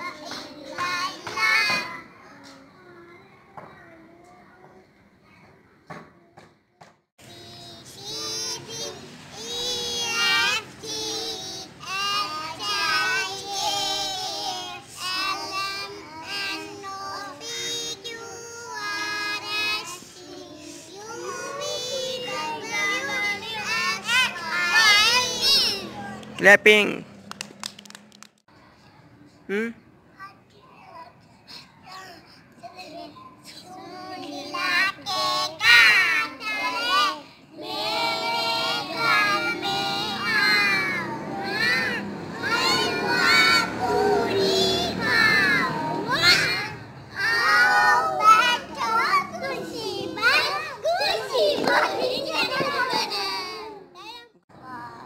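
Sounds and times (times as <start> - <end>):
child singing: 0.0 - 6.5, 7.2 - 26.2, 31.8 - 55.0.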